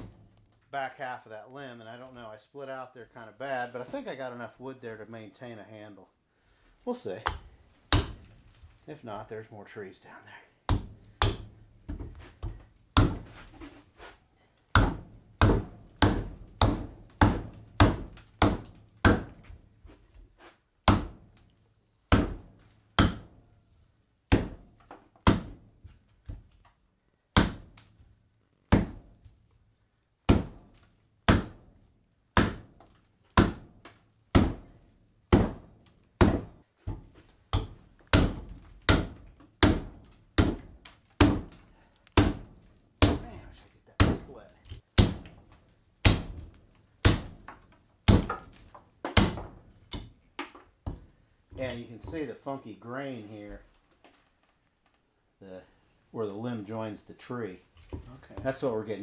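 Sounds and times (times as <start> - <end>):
hatchet chopping wood: 7.3 - 8.4, 10.7 - 13.4, 14.7 - 19.6, 20.8 - 21.2, 22.1 - 23.4, 24.3 - 25.6, 27.4 - 27.7, 28.7 - 29.0, 30.3 - 31.6, 32.4 - 34.7, 35.3 - 43.4, 44.0 - 52.2.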